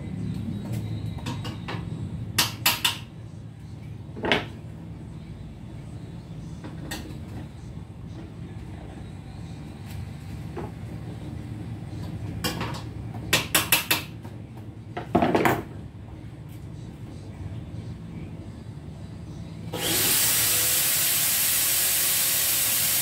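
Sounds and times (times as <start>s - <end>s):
steady low hum: 14.2s - 19.8s.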